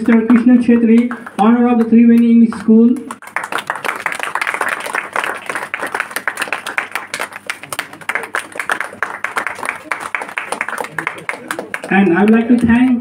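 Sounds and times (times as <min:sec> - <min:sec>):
audience clapping: 0:00.0 - 0:13.0.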